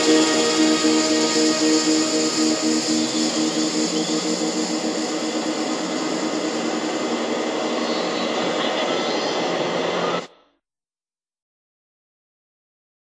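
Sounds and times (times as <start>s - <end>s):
distorted rock guitar wash: 0.0s - 10.3s.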